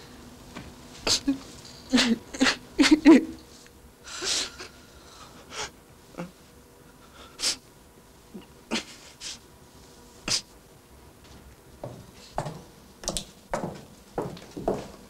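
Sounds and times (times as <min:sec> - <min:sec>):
faint steady hum: 0:00.0 - 0:15.0
person sniffing and snorting: 0:01.0 - 0:02.6, 0:07.0 - 0:07.6, 0:08.7 - 0:09.4, 0:10.2 - 0:10.5.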